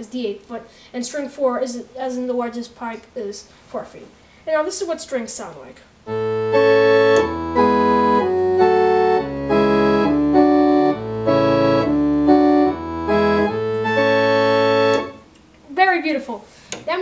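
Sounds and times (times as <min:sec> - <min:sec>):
low organ bass notes: 0:06.1 - 0:15.2
organ playing sustained chords: 0:06.1 - 0:15.3.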